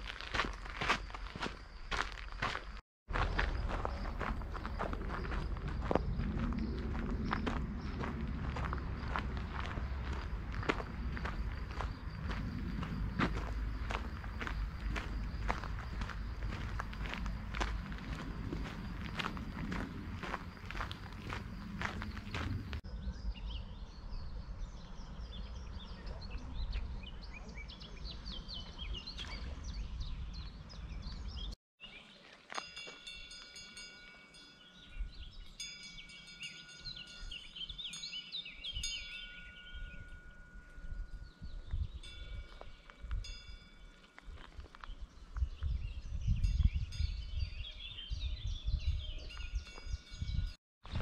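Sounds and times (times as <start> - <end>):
footsteps on gravel: 0.0 - 22.8, 42.4 - 45.7
low rumbling noise: 3.1 - 27.3
songbirds chirping and singing: 3.8 - 32.6, 34.0 - 43.2, 43.9 - 51.0.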